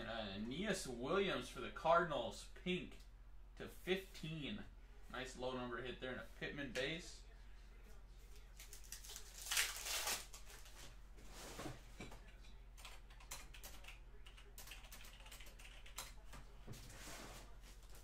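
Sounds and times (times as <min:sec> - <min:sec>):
foil wrappers crinkling: 0:08.6 - 0:10.8.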